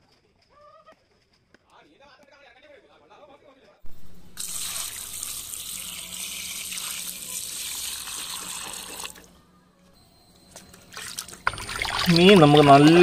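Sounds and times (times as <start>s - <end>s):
water pouring into metal basin: 4.3s - 9.3s, 11.0s - 13.0s
hands sloshing in water: 10.9s - 13.0s.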